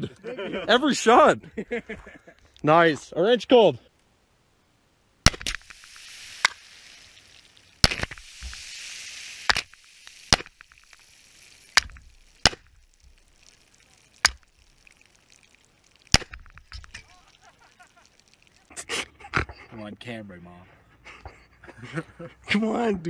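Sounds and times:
gunshots hitting metal cans: 5.3s - 5.8s, 7.8s - 8.3s, 9.5s - 10.8s, 16.1s - 17.0s
soda spraying with fizzing hiss: 5.4s - 19.0s.

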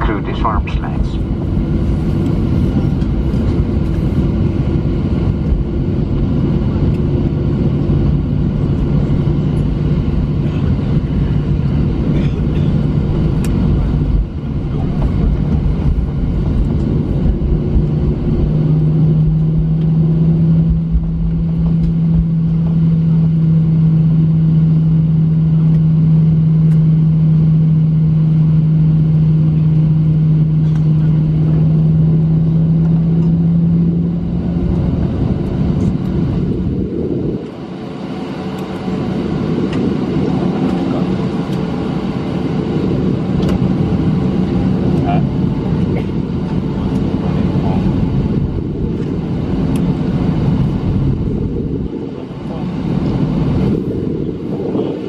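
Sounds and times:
airplane cabin rumble: 0.0s - 55.0s
jet engine low hum: 0.0s - 55.0s.

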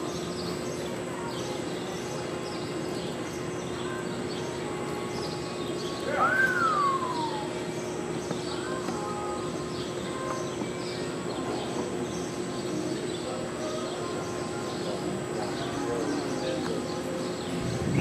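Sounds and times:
indoor arena hum: 0.0s - 18.0s
loud rising and falling whistle: 6.2s - 7.5s.

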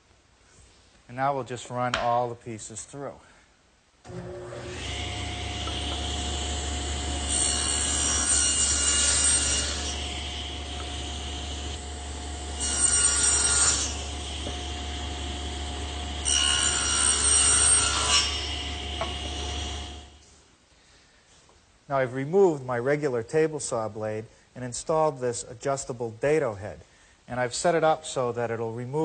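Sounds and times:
saw blade cutting wood: 4.1s - 20.2s
table saw humming: 4.1s - 20.2s.

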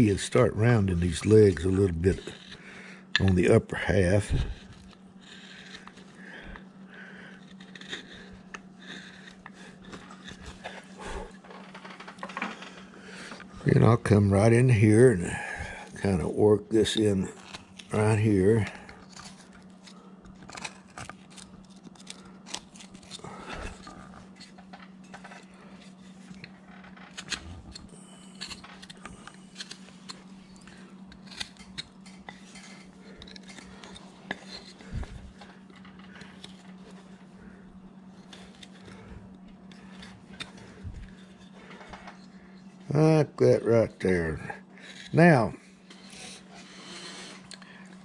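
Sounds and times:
faint steady hum: 0.0s - 48.0s
carving tool cutting wood: 1.2s - 2.6s, 4.2s - 6.6s, 7.2s - 11.2s, 25.2s - 35.4s.

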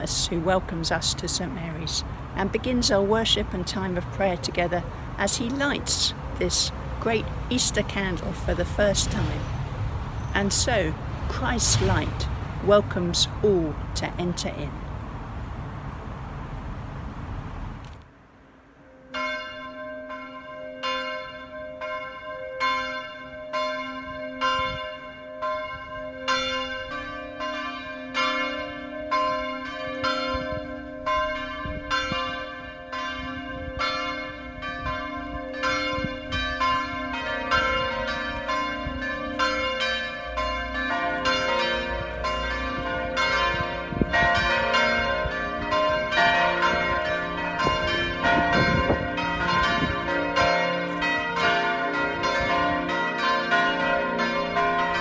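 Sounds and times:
church bells ringing: 10.4s - 13.3s, 18.8s - 55.0s.

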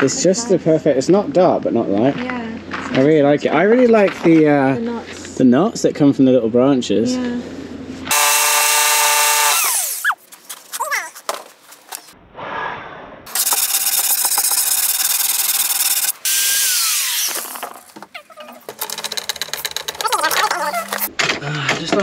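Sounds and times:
power tool cutting wood: 8.1s - 10.2s, 13.3s - 18.0s
clicks and knocks: 17.4s - 22.0s.

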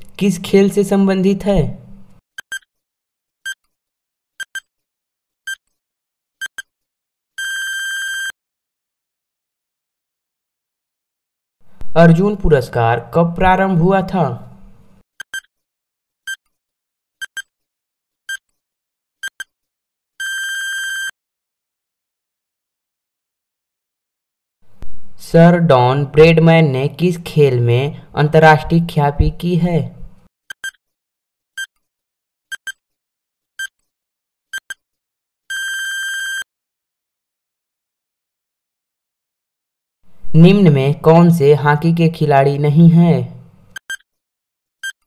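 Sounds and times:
electronic timer ticks: 2.4s - 2.7s, 4.4s - 4.7s, 6.4s - 6.7s, 15.2s - 15.5s, 17.2s - 17.5s, 19.2s - 19.5s, 30.5s - 30.8s, 32.5s - 32.8s, 33.6s - 33.8s, 34.5s - 34.8s, 43.7s - 44.1s
electronic ringing tone: 7.4s - 8.3s, 20.2s - 21.1s, 35.5s - 36.4s.

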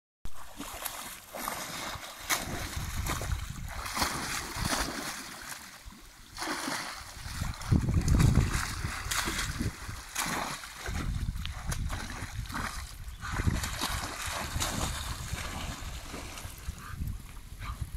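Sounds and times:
dog splashing in water: 0.4s - 16.6s.

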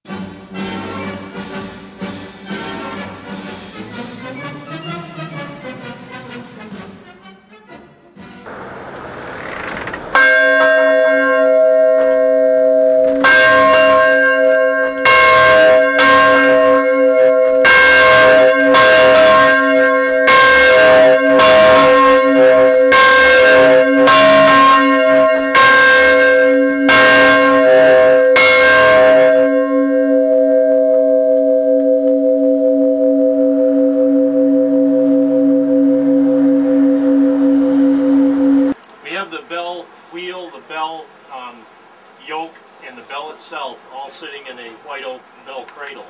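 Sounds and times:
church bell ringing: 10.2s - 38.8s.

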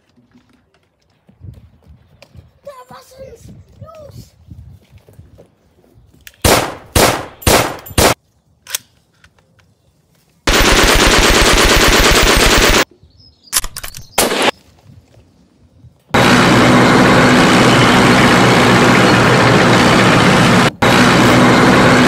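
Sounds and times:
machine-gun gunfire: 6.4s - 8.2s, 10.5s - 12.9s, 14.2s - 14.5s.

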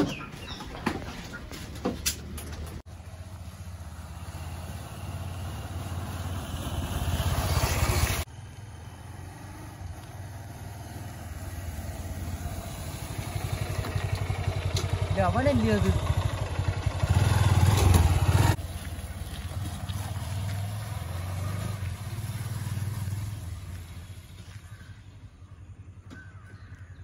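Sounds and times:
motorcycle engine running steadily: 2.8s - 7.4s, 8.0s - 27.0s
motorcycle passing close: 2.9s - 25.7s.

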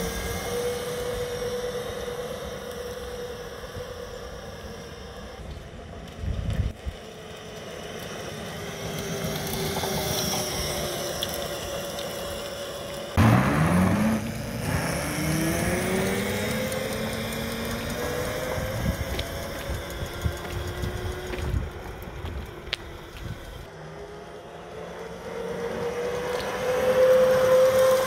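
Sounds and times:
electric motor whining: 0.0s - 23.7s
sudden rush: 13.2s - 16.0s.

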